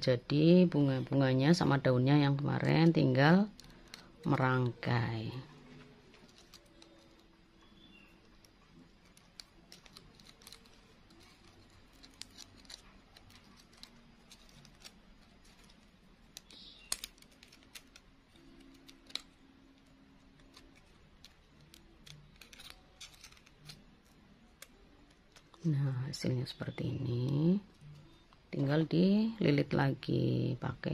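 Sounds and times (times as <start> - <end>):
plastic sheet crackling in fingers: 2.6 - 25.7.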